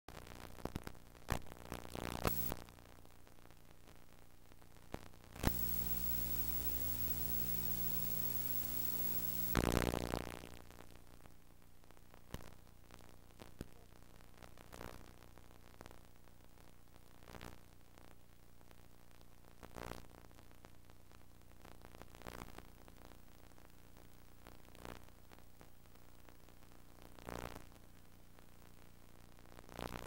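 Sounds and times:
tape hiss: 0.1s - 30.0s
clicks and crackles: 0.5s - 2.6s, 4.9s - 9.9s
burst of static: 2.0s - 2.6s, 5.4s - 10.2s
electrical hum-buzz: 2.0s - 2.6s, 5.4s - 10.2s.

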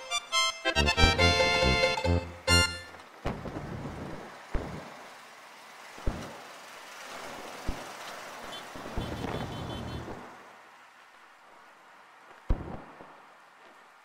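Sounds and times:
auto rickshaw engine: 1.0s - 10.9s.

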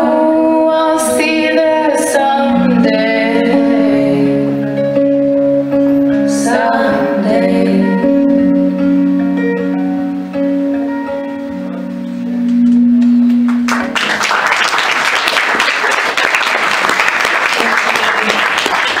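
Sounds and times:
acoustic guitar: 0.0s - 14.1s
audience applause: 13.5s - 19.0s.

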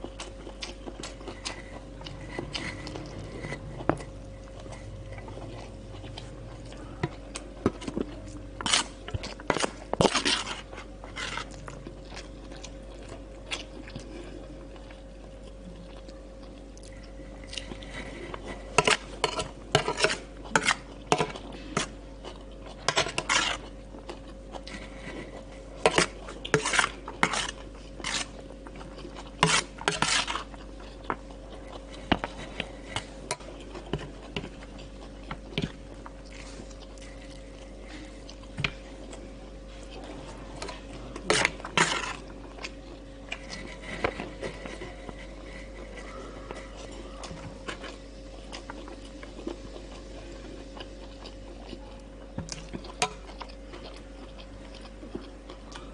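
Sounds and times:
metal spoon scraping a plate: 18.7s - 21.3s, 25.8s - 28.4s, 29.4s - 30.5s, 41.3s - 42.2s.

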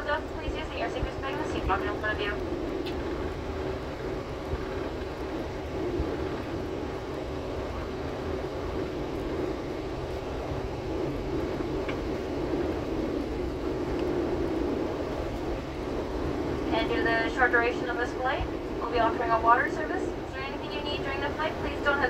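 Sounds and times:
airliner engines droning: 0.0s - 22.0s
rushing air in cabin: 0.0s - 22.0s.

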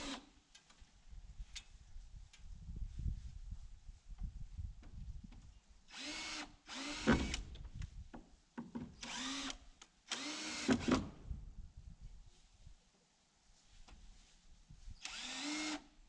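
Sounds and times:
power drill spinning: 5.9s - 7.5s, 9.0s - 10.8s, 15.0s - 15.9s.

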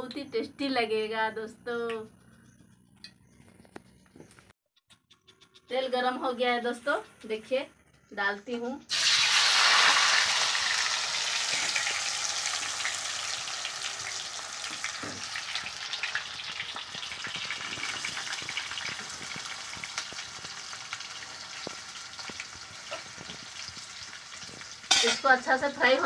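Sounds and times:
oil crackling pops: 8.9s - 24.8s
ladle turning potatoes: 8.9s - 26.0s
potatoes sizzling in oil: 8.9s - 26.0s.

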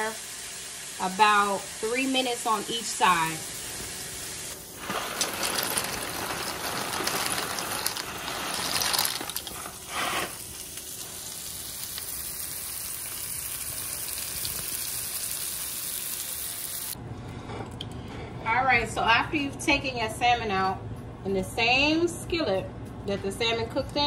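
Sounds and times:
water boiling and bubbling: 0.0s - 17.0s.

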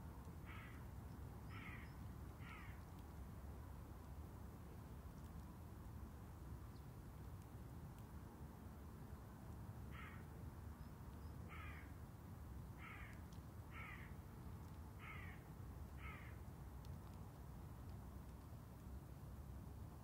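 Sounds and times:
crow cawing: 0.5s - 0.8s, 1.5s - 2.8s, 9.9s - 10.2s, 11.5s - 11.9s, 12.8s - 14.1s, 15.0s - 15.4s, 16.0s - 16.4s.

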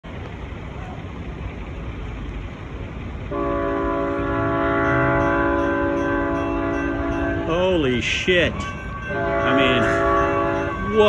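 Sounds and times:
locomotive air horn blast: 3.3s - 7.6s, 8.9s - 11.0s.

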